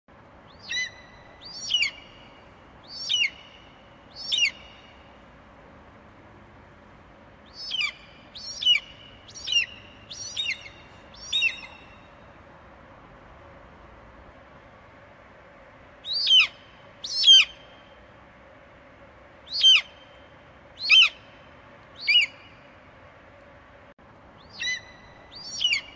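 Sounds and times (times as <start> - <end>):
bird whistled calls: 0.5 - 2.3, 2.9 - 4.9, 7.5 - 12.1, 16.0 - 17.7, 19.5 - 20.1, 20.8 - 21.3, 22.0 - 22.6, 24.4 - 25.9.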